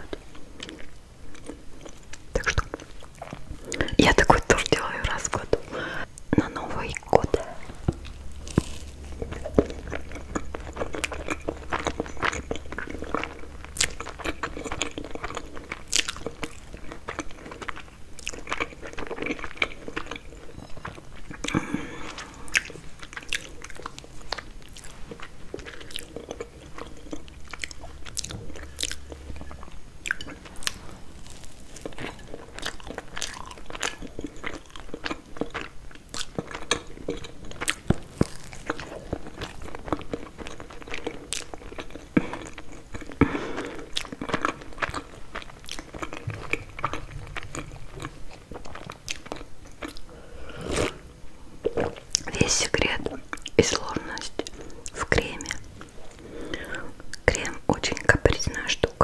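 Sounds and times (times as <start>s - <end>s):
moist chewing: 6.3s - 50.1s
pastry crunching: 6.7s - 50.1s.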